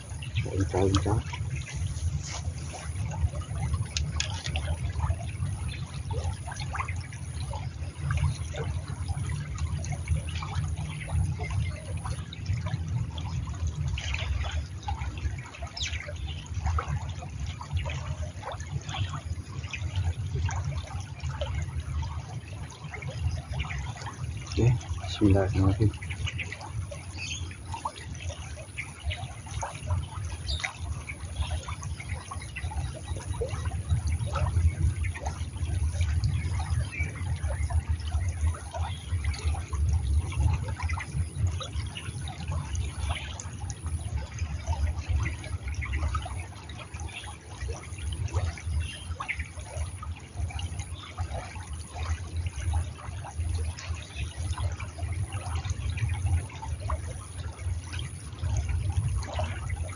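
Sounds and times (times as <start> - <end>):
stream trickling over stones: 0.0 - 59.9.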